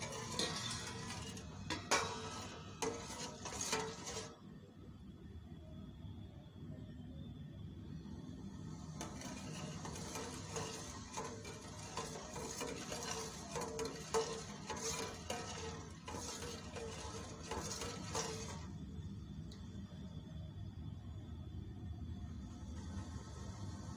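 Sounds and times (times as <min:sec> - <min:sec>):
metal spoon scraping metal pot: 0:00.0 - 0:04.4, 0:09.0 - 0:18.8.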